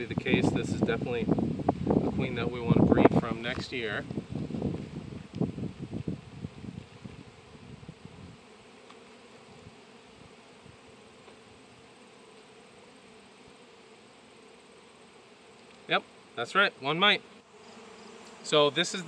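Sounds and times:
bees buzzing: 0:00.0 - 0:19.0.

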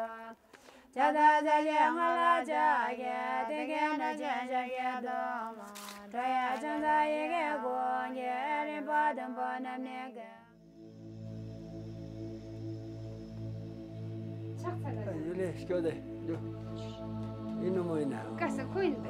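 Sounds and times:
women singing unaccompanied: 0:00.0 - 0:10.6, 0:16.4 - 0:19.0
low held note: 0:10.6 - 0:19.0.

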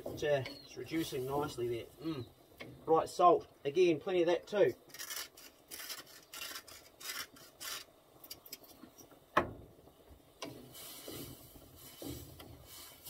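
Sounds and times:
salt grinder crunching: 0:04.9 - 0:07.9
sauce sizzling in a pan: 0:10.4 - 0:13.0.

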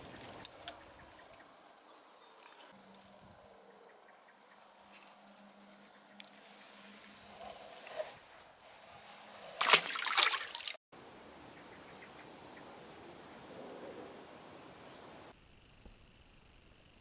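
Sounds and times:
small bird chirping: 0:00.3 - 0:06.8, 0:07.8 - 0:09.1.

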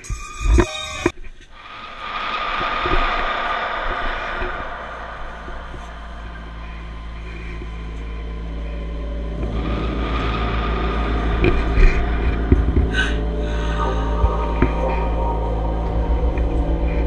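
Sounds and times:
deep rumble with low hum: 0:01.0 - 0:17.0.

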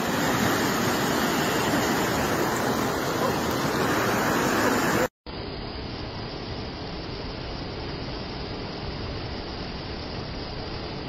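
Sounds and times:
river water rushing: 0:00.0 - 0:05.1.

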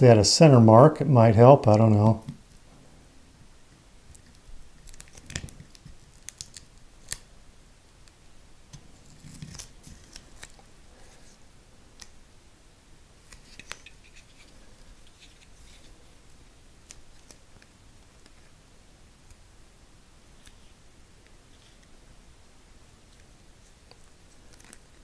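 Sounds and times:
light scratching and rubbing: 0:13.3 - 0:16.1.

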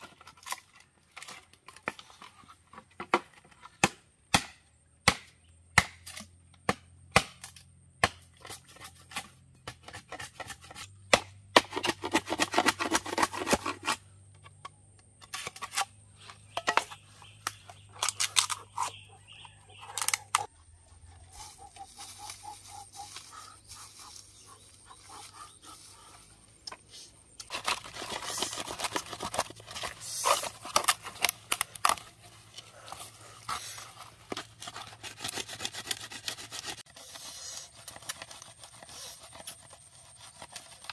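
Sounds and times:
blade scraping bamboo: 0:00.0 - 0:03.8, 0:07.2 - 0:20.5, 0:21.2 - 0:40.9
machete chopping bamboo: 0:03.0 - 0:14.0.

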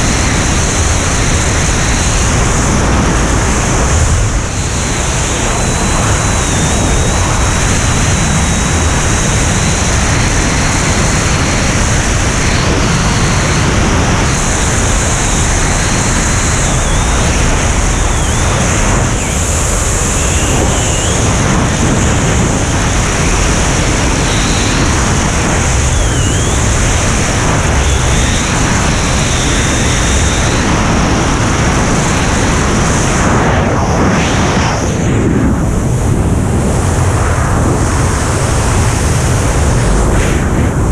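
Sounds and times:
wind rushing on microphone: 0:00.0 - 0:40.9
thin high wavering whistle: 0:16.4 - 0:21.4, 0:25.7 - 0:26.8, 0:27.5 - 0:30.6.

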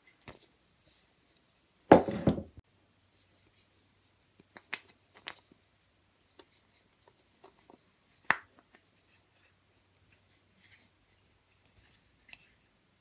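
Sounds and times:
sharp wooden knock: 0:01.9 - 0:02.5
small wooden clicks: 0:04.4 - 0:05.6.

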